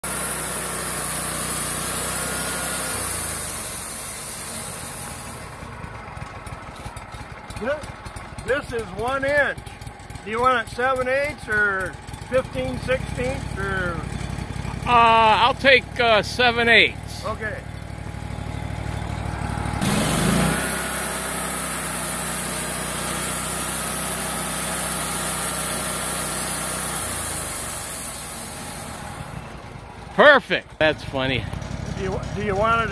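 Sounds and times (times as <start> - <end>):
band blade hissing: 0.0 - 5.6, 19.8 - 29.3
sawmill engine hum: 0.0 - 32.9.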